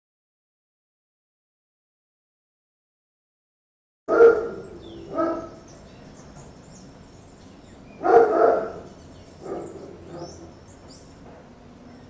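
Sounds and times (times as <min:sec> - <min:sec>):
dog barking: 0:04.1 - 0:05.7, 0:08.0 - 0:10.5.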